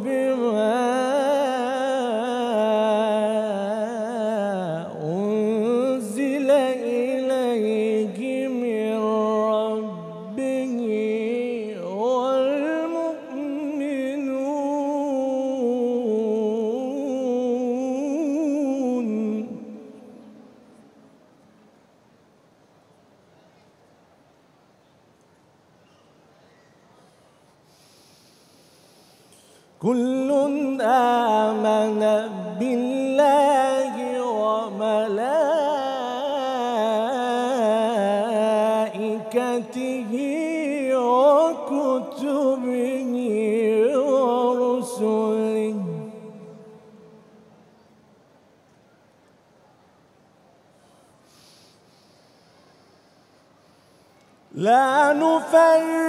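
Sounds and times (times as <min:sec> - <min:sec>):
man chanting melodically: 0:00.0 - 0:20.7, 0:29.8 - 0:47.3, 0:54.5 - 0:56.0.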